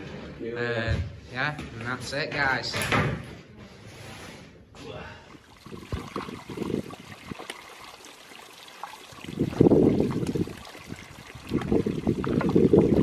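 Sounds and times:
wind gusting on microphone: 5.6s - 7.4s, 9.2s - 13.0s.

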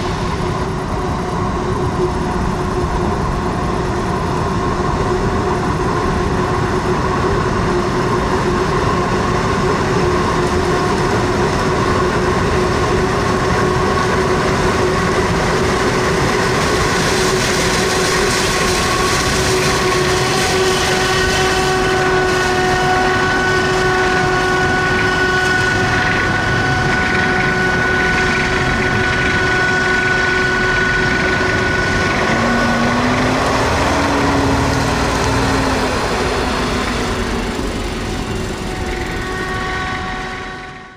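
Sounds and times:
forage harvester running under load: 0.0s - 40.9s
high mechanical whine: 0.0s - 40.9s
lower engine note rising in pitch: 0.0s - 40.9s.

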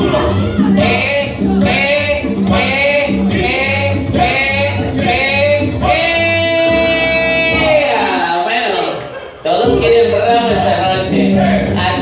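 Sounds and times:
person singing: 0.0s - 8.4s
upbeat dance music: 0.0s - 12.0s.

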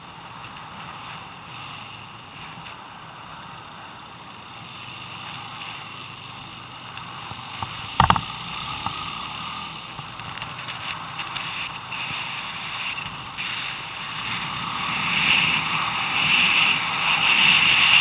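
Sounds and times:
atv engine running: 0.0s - 18.0s
sharp knocks: 7.6s - 8.3s.

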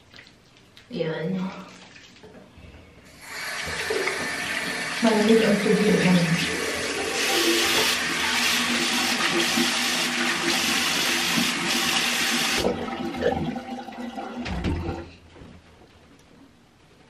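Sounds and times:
soft water splashing: 0.0s - 2.6s
tap running into a sink: 3.5s - 4.8s.

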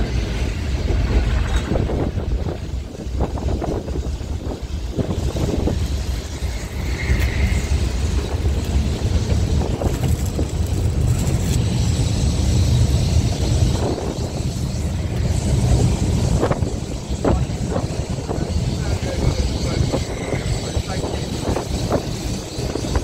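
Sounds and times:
tram rumbling along track: 0.0s - 23.0s
wind buffeting microphone: 0.0s - 23.0s.

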